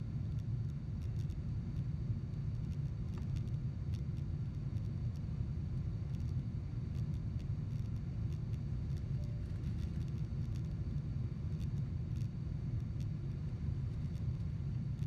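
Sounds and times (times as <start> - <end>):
faint light ticks: 0.3 - 5.3, 6.1 - 15.0.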